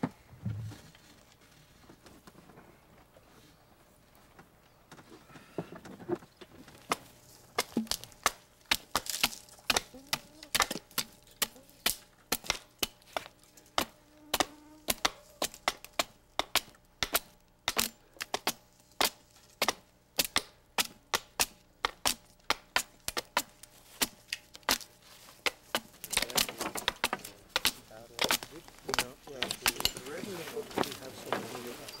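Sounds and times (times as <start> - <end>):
hatchet chopping wood: 6.8 - 30.1.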